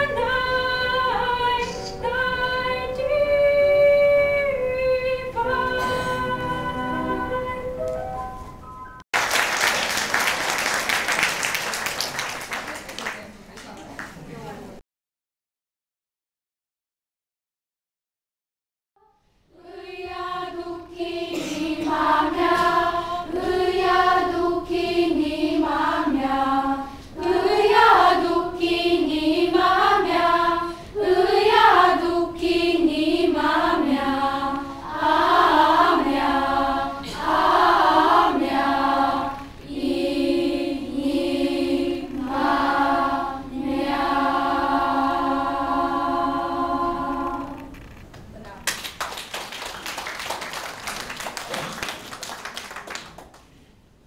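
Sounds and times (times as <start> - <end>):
children's choir singing: 0.0 - 7.8, 19.5 - 47.8.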